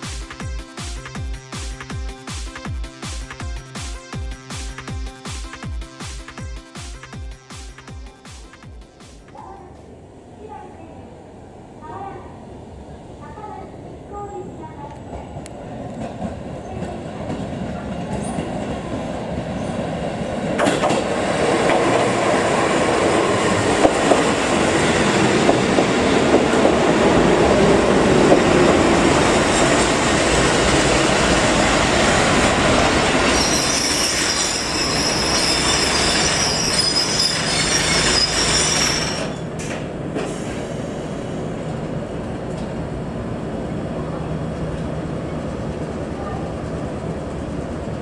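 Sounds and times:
high brake squeal: 0:33.3 - 0:39.5.

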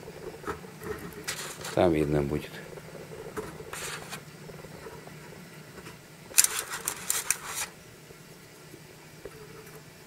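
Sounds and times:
eggs and wire tray clicking: 0:06.3 - 0:07.7.

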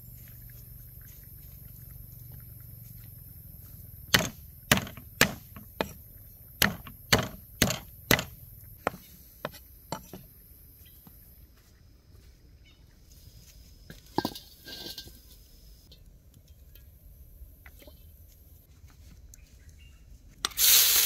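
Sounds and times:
knife chopping on wooden board: 0:04.1 - 0:06.0, 0:06.6 - 0:10.1.

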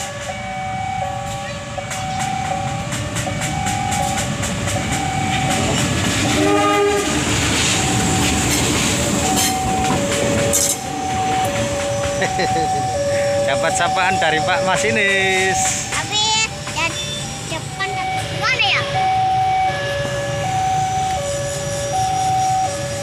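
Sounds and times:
locomotive engine rumbling: 0:00.0 - 0:23.0
train horn blast: 0:06.2 - 0:07.4.

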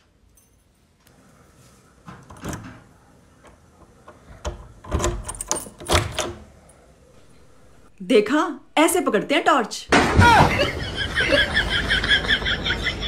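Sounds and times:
door lock clicks and rattles: 0:02.3 - 0:02.8, 0:03.4 - 0:06.5.

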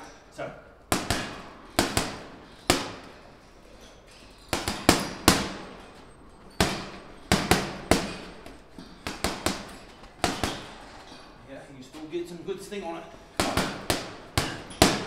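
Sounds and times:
punches smacking heavy bag: 0:00.9 - 0:03.2, 0:04.4 - 0:11.0, 0:13.3 - 0:15.0.

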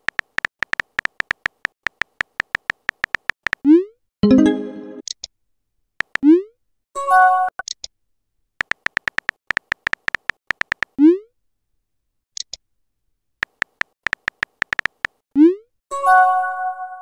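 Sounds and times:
keyboard key clicks: 0:00.0 - 0:03.6, 0:06.0 - 0:06.2, 0:08.6 - 0:11.0, 0:13.4 - 0:15.2.

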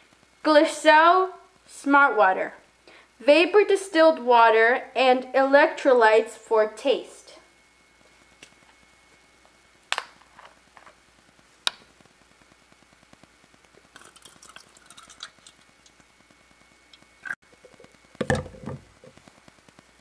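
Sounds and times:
water pouring into plastic cup: 0:13.9 - 0:16.0
knock: 0:18.2 - 0:18.9.

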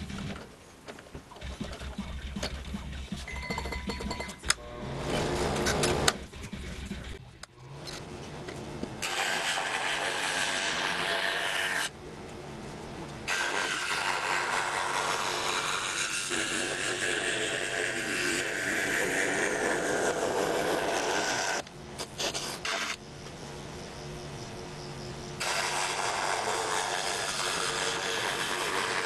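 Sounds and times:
scroll saw cutting plywood: 0:09.0 - 0:11.9, 0:13.3 - 0:21.6, 0:25.4 - 0:29.0.

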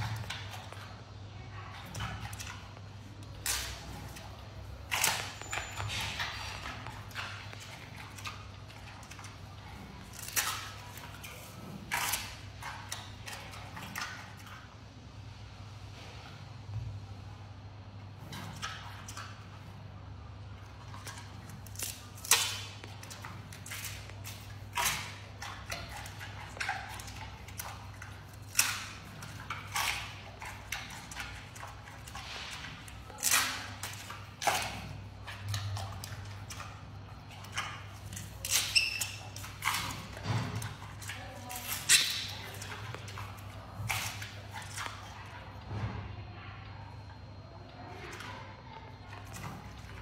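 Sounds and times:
panda crunching bamboo: 0:01.8 - 0:14.5, 0:20.8 - 0:45.6.

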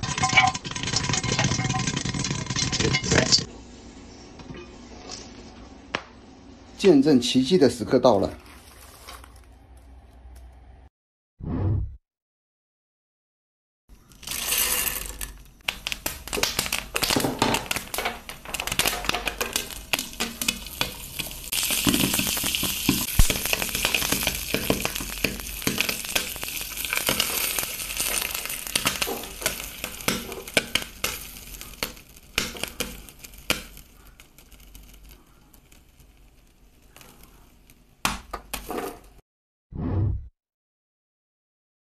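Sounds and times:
popcorn popping in oil: 0:00.0 - 0:03.5, 0:13.9 - 0:39.2
oil sizzling: 0:00.0 - 0:06.9, 0:13.9 - 0:39.2.

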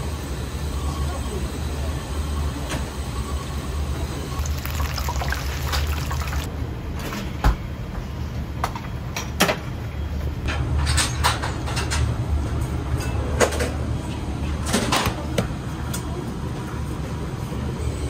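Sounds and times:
oil sizzling and crackling: 0:04.4 - 0:06.5.

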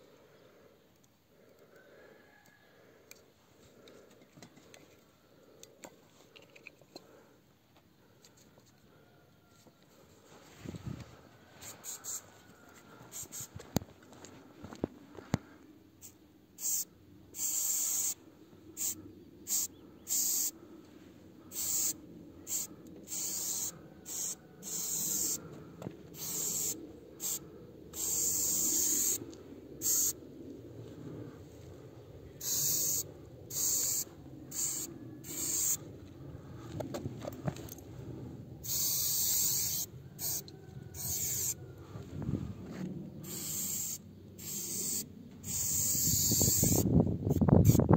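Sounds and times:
spray paint can hissing: 0:11.8 - 0:12.2, 0:13.1 - 0:13.6, 0:16.0 - 0:18.2, 0:18.8 - 0:20.5, 0:21.5 - 0:25.4, 0:26.1 - 0:27.4, 0:28.0 - 0:29.2, 0:29.8 - 0:30.2, 0:32.4 - 0:35.8, 0:38.6 - 0:40.4, 0:41.0 - 0:41.6, 0:43.2 - 0:47.9
low background rumble: 0:18.2 - 0:39.2.

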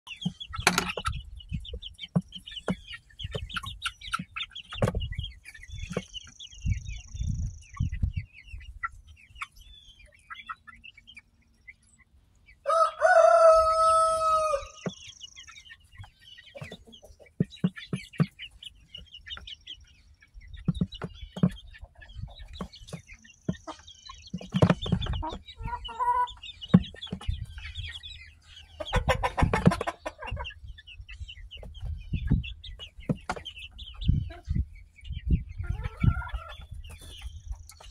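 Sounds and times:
chickens pecking at dish: 0:00.1 - 0:37.9
rooster crowing: 0:12.6 - 0:14.8.

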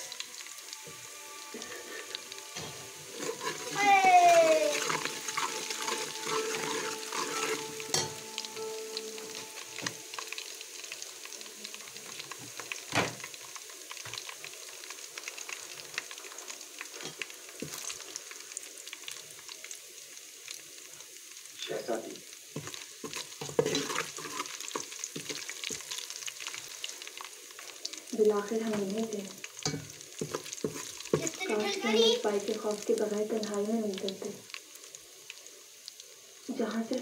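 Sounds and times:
food sizzling in hot oil: 0:00.0 - 0:37.0
metal spatula scraping a pot: 0:01.6 - 0:03.9, 0:04.7 - 0:08.2, 0:22.6 - 0:26.0, 0:29.6 - 0:31.2.

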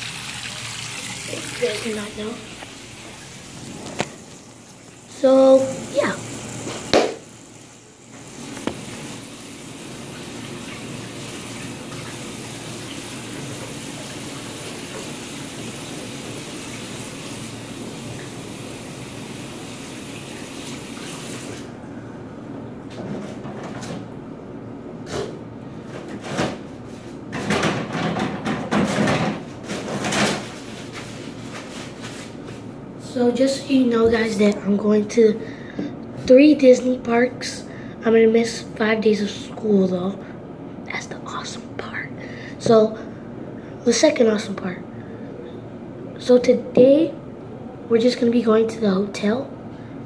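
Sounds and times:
faucet running: 0:00.0 - 0:21.7
paper towel rustling and tearing: 0:29.5 - 0:32.8.

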